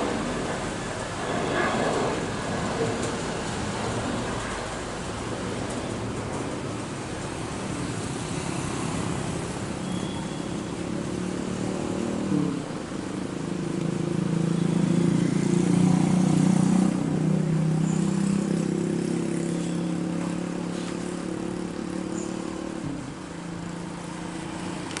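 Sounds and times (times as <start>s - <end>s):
jet engines droning: 0.0s - 25.0s.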